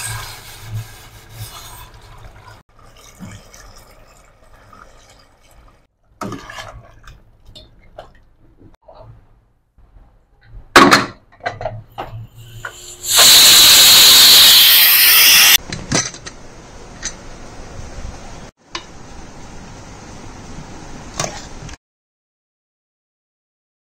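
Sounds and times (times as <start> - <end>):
pressure cooker venting steam: 12.3 - 15.6.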